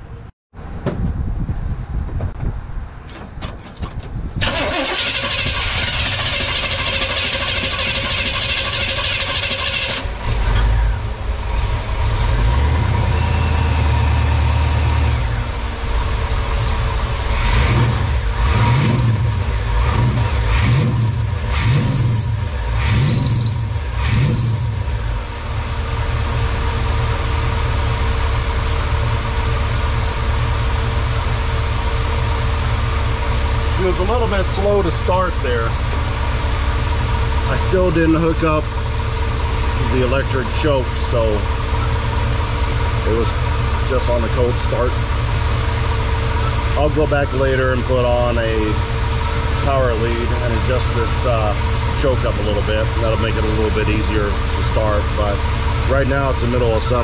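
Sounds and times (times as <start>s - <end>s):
engine cranking on starter: 3.1s - 13.0s
engine revving: 4.4s - 28.5s, 32.6s - 57.0s
engine idling: 4.4s - 57.0s.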